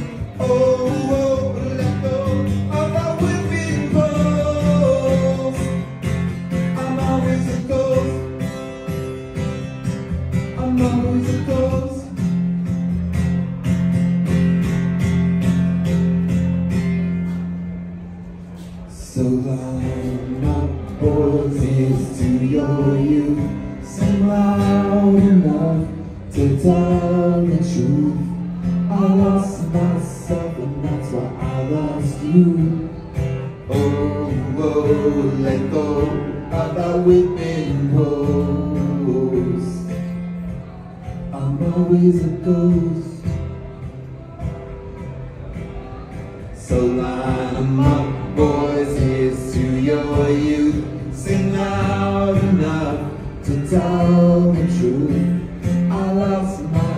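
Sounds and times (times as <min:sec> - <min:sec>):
man singing: 0:00.0 - 0:08.6, 0:10.3 - 0:12.4, 0:18.9 - 0:40.2, 0:40.8 - 0:43.4, 0:46.5 - 0:56.9
acoustic guitar: 0:00.0 - 0:56.9.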